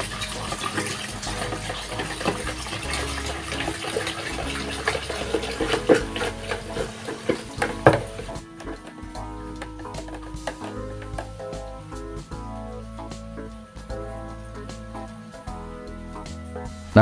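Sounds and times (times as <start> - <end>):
water pouring into a jug: 0.0 - 11.4
knocks of stirring: 0.0 - 11.8.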